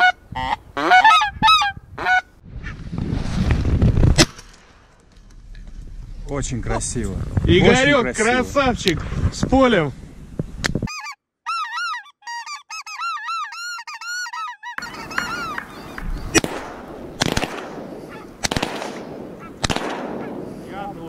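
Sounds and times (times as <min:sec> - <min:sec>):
sharp bangs: 0:14.9 - 0:21.0.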